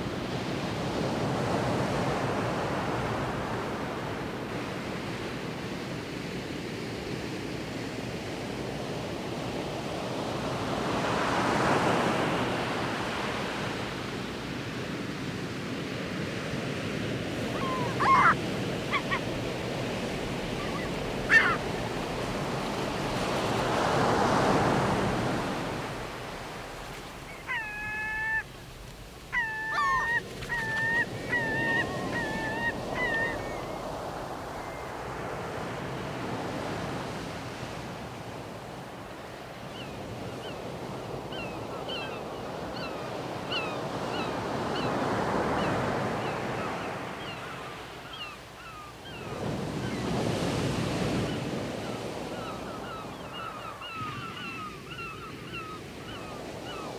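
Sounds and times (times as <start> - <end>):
sea waves washing on shore: 0.0 - 56.9
bird harsh calls: 17.5 - 19.4, 20.5 - 22.1, 27.3 - 28.5, 29.3 - 33.7.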